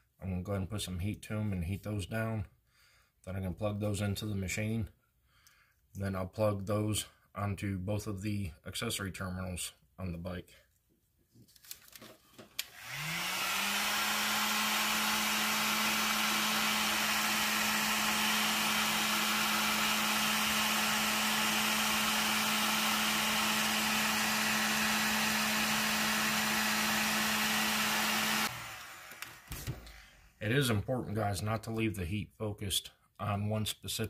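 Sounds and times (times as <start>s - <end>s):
heat gun fan rushing air: 12.6s - 30.4s.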